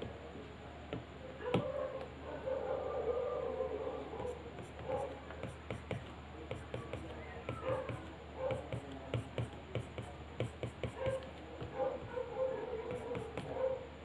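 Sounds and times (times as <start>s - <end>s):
stylus tapping on glass screen: 5.4s - 11.7s.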